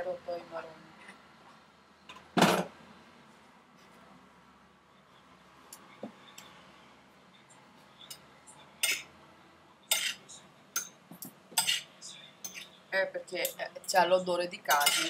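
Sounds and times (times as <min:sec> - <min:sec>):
cutlery scraping ceramic plate: 0:11.6 - 0:12.8, 0:14.7 - 0:15.0.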